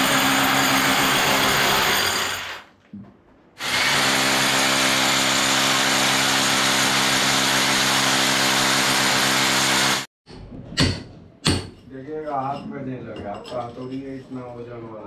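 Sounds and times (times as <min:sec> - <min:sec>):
electric drill boring through wall: 0:00.0 - 0:02.6, 0:03.6 - 0:10.1.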